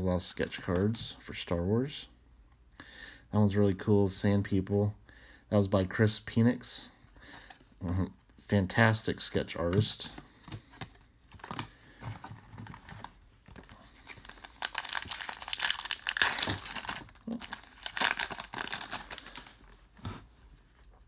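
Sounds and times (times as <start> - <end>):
wrapper crinkling and tearing: 12.6 - 19.6.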